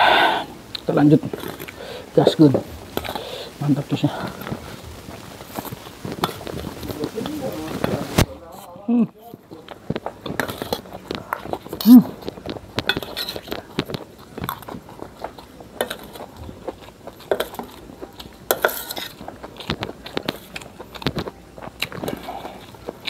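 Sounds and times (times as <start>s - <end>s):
chewing: 0.7s - 2.1s, 2.8s - 8.0s, 9.1s - 23.0s
cutlery clinking on metal plate: 12.3s - 14.6s, 18.5s - 22.3s.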